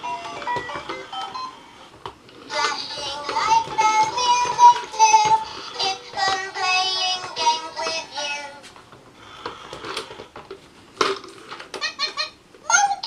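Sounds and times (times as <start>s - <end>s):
toy ball playing children's song: 0.0s - 1.7s, 2.4s - 8.8s.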